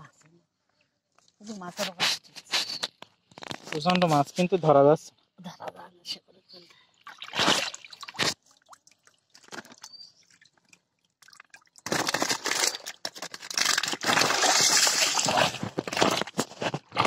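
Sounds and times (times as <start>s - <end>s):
water dripping: 7.0s - 11.9s
water splashing and sloshing: 7.0s - 17.0s.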